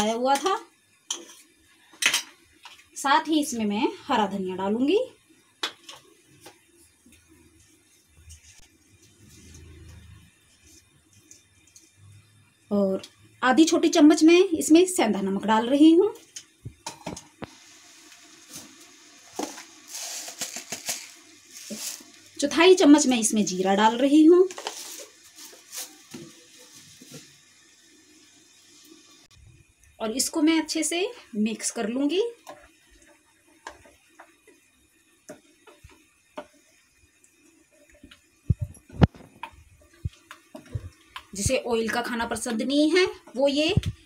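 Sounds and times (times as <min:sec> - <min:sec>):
faint hiss: 0:16.2 - 0:32.4.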